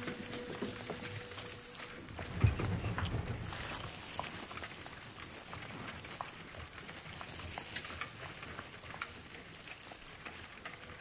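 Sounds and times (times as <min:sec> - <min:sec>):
crackling hiss: 0:00.0 - 0:11.0
scattered small clicks: 0:03.0 - 0:11.0.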